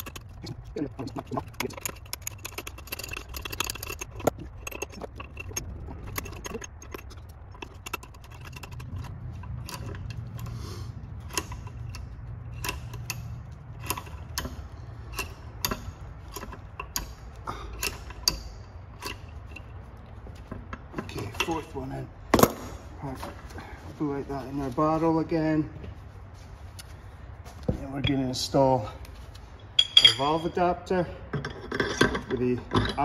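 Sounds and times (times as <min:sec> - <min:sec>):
allen key clicking on metal screws: 0:00.0 - 0:22.5.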